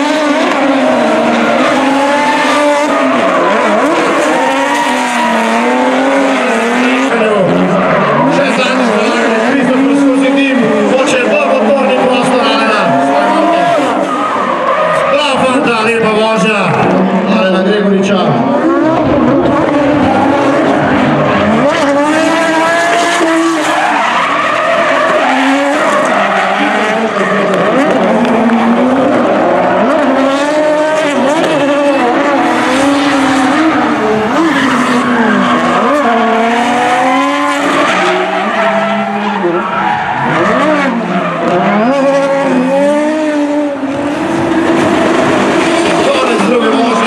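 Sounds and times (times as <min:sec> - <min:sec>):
car engines revving: 0:00.0 - 0:47.0
tyres squealing and skidding: 0:00.0 - 0:47.0.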